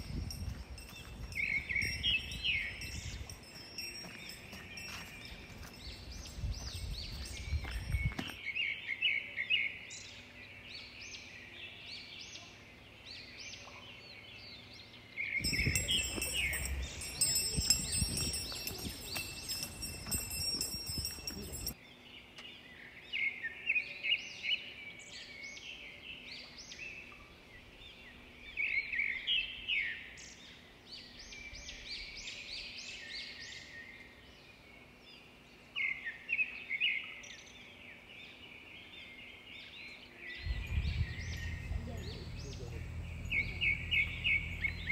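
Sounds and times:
small birds chirping: 0:00.0 - 0:23.5, 0:24.2 - 0:44.9
low steady rumble: 0:15.4 - 0:21.7, 0:40.4 - 0:44.9.

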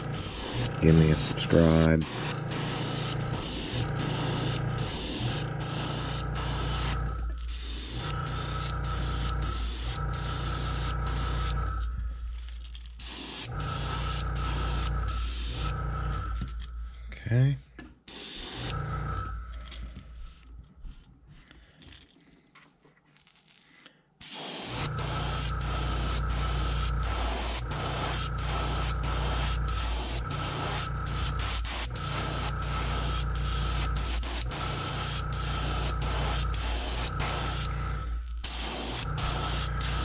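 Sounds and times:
airbrush hissing: 0:00.0 - 0:11.7, 0:13.0 - 0:15.8, 0:18.1 - 0:18.8, 0:24.2 - 0:40.0.

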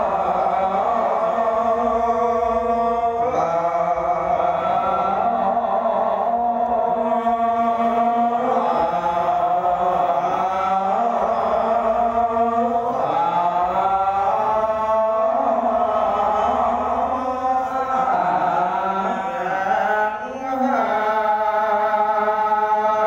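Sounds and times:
monk chanting into a microphone: 0:00.0 - 0:23.0.

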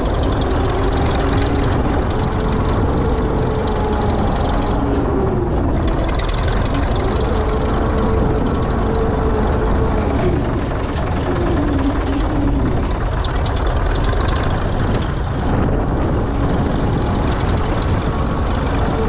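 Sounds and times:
diesel crawler engine running: 0:00.0 - 0:19.0.

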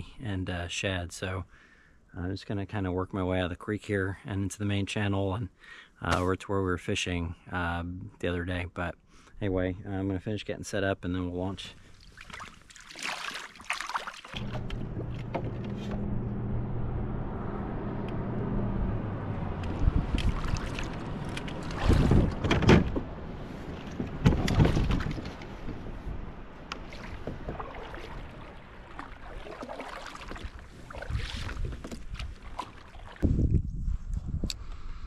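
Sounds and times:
water splashing: 0:11.8 - 0:16.0, 0:19.5 - 0:22.5, 0:23.2 - 0:25.8, 0:26.5 - 0:33.2
paddle strokes: 0:19.6 - 0:33.2
kayak hull knocking: 0:26.8 - 0:28.1.

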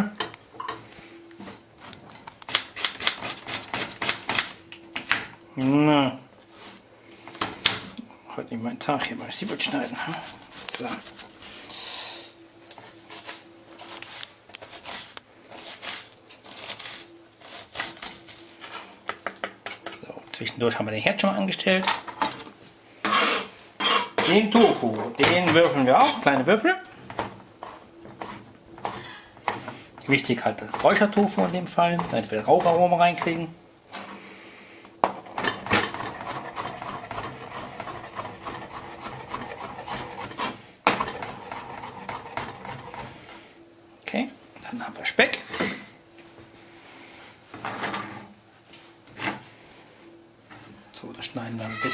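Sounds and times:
knife cutting onion: 0:02.4 - 0:05.1, 0:35.6 - 0:43.1.

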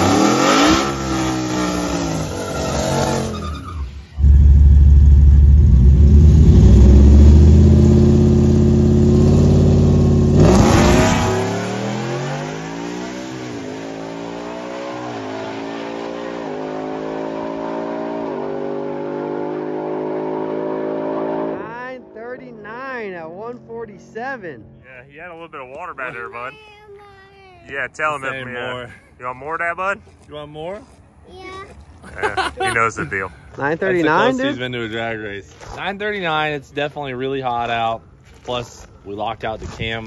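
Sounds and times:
truck accelerating through gears: 0:00.0 - 0:21.6
truck engine revving: 0:00.0 - 0:24.8.

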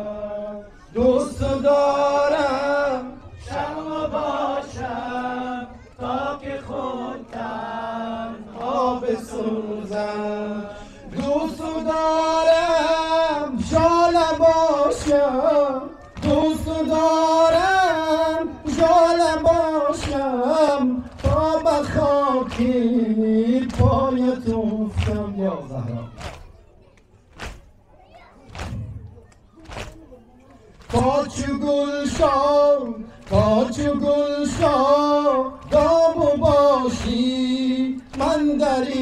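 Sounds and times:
men chanting a lament: 0:00.0 - 0:26.2, 0:30.7 - 0:39.0.

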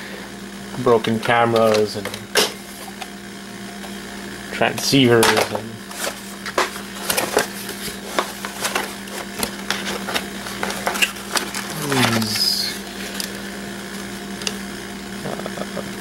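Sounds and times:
cardboard crackling and rustling: 0:05.4 - 0:13.2.

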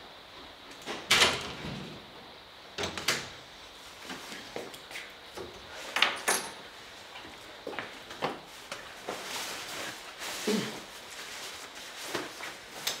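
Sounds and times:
footsteps on tiled floor: 0:04.0 - 0:05.1, 0:07.0 - 0:13.0.

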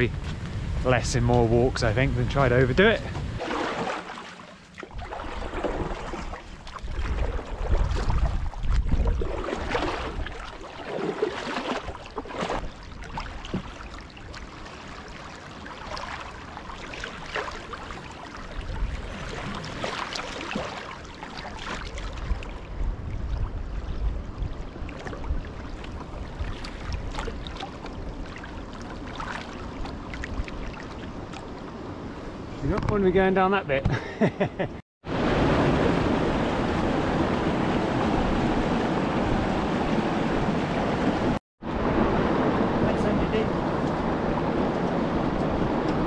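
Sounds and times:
wind rumble on microphone: 0:00.0 - 0:03.5, 0:04.9 - 0:10.6, 0:18.4 - 0:19.8, 0:21.8 - 0:33.2, 0:35.1 - 0:46.0
water washing past hull: 0:00.0 - 0:32.6, 0:35.0 - 0:46.0
paddle splashing and dripping: 0:03.1 - 0:31.8.

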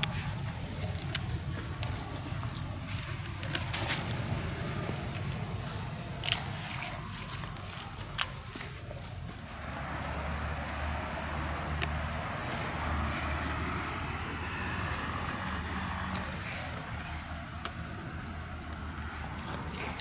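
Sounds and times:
steady low rumble: 0:00.0 - 0:14.6.

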